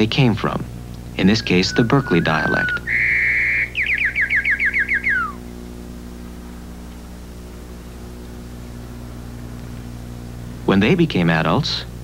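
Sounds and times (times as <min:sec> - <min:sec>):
steady low hum: 0:00.0 - 0:12.0
sparrow song trill: 0:01.1 - 0:05.8.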